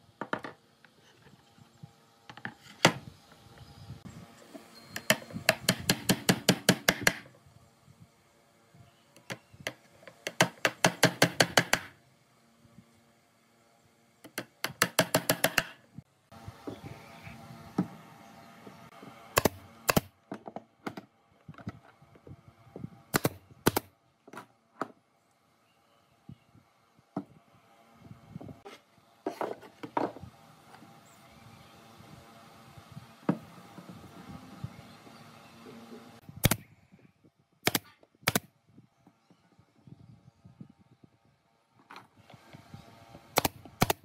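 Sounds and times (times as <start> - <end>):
hammer driving nails into wood: 5.1 - 7.2, 10.2 - 11.9, 14.3 - 15.8.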